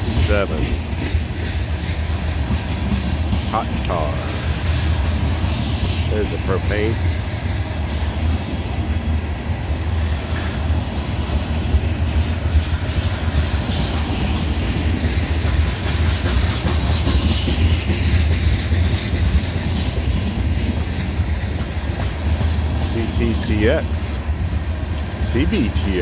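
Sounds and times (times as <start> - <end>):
train wheels rumbling on rails: 0.0 - 26.0.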